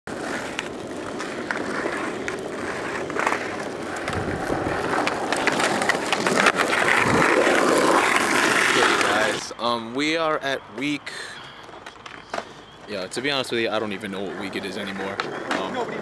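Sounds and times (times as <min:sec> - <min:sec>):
skateboard clicks and clacks: 0:00.1 - 0:09.4, 0:14.0 - 0:16.0
skateboard wheels rolling on asphalt: 0:00.1 - 0:16.0.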